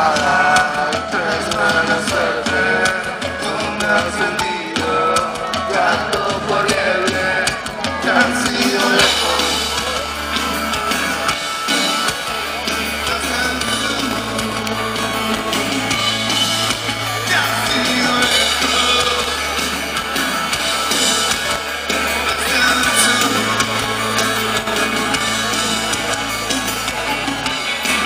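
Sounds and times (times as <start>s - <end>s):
drum kit with cymbals: 0.0s - 28.0s
electric guitar: 0.0s - 28.0s
low bass line: 8.2s - 28.0s.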